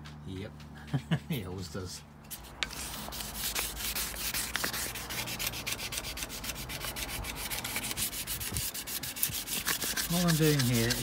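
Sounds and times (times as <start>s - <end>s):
wet sandpaper rubbing on metal tube: 2.3s - 11.0s.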